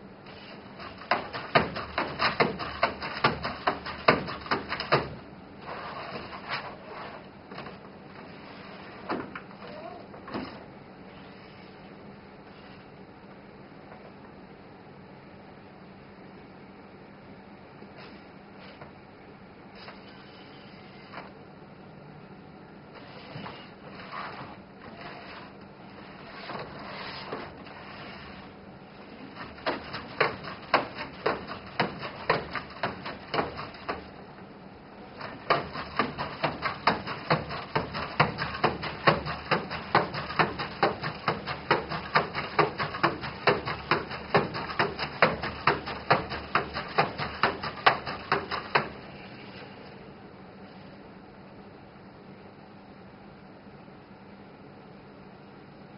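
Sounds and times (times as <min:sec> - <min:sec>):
robot motors whirring: 0:23.0 - 0:25.5.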